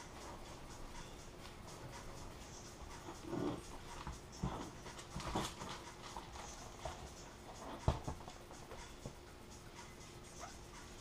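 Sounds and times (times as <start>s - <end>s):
laminating film crackling: 4.0s - 7.1s.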